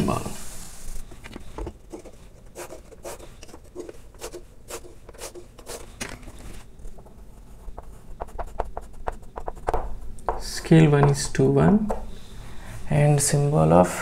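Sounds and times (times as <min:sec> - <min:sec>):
chalk scratching on blackboard: 0:01.9 - 0:05.9, 0:07.3 - 0:10.9.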